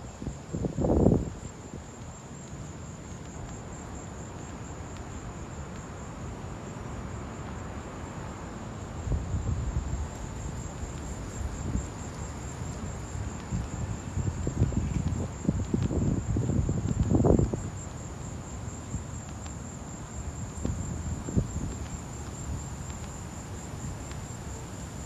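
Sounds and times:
insects trilling: 0:09.0 - 0:25.0.

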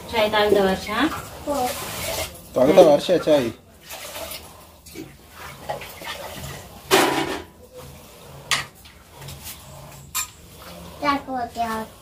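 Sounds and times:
metal pots clinking and knocking: 0:04.9 - 0:07.6, 0:09.9 - 0:10.5.

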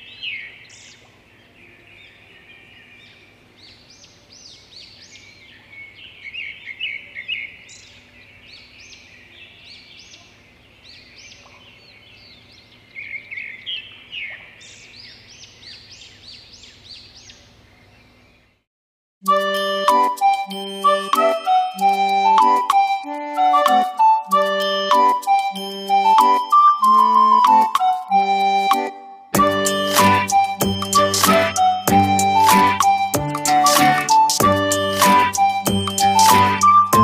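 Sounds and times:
small birds chirping: 0:00.0 - 0:18.7
instrumental music: 0:19.2 - 0:37.0.

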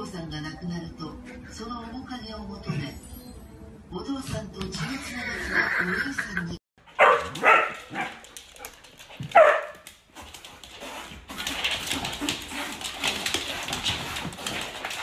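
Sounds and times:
dog yelping: 0:07.0 - 0:08.2.

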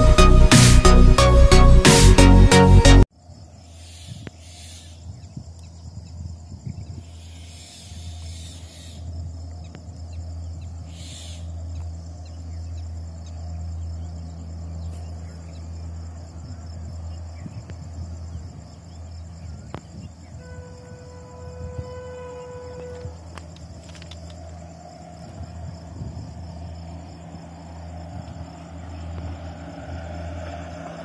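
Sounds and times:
steady low hum: 0:03.4 - 0:30.8
birds calling: 0:03.6 - 0:20.4.

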